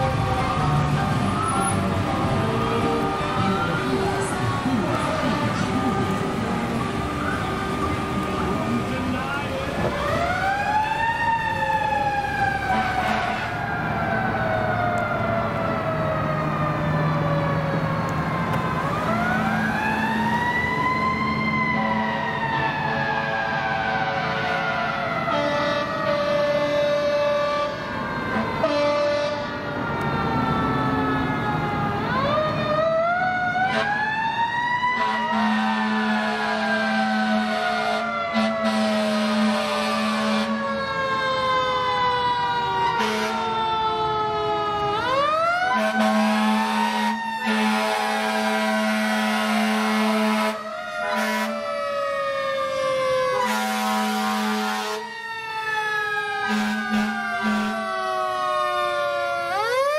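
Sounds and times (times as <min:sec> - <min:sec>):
deep air horn blasts: 0:25.3 - 0:27.7, 0:28.6 - 0:29.5, 0:35.0 - 0:40.6, 0:43.0 - 0:43.5, 0:45.7 - 0:51.7, 0:53.4 - 0:55.1, 0:56.4 - 0:57.9.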